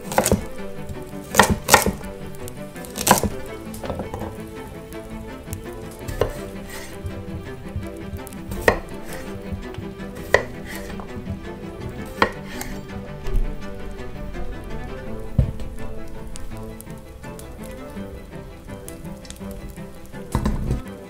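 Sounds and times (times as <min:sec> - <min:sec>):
knife striking wooden board: 0:00.1 - 0:00.5, 0:01.3 - 0:02.0, 0:06.1 - 0:06.9, 0:08.2 - 0:09.6, 0:10.2 - 0:11.0, 0:12.1 - 0:12.8.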